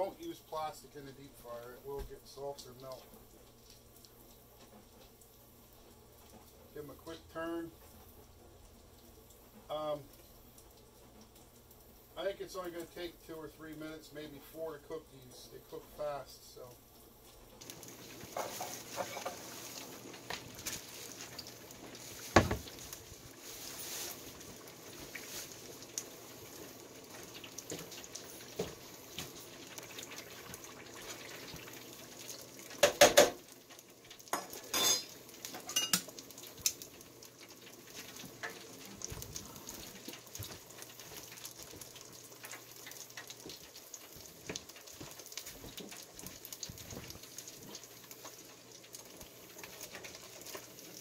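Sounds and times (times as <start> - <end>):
fish frying in oil: 0.0 - 51.0.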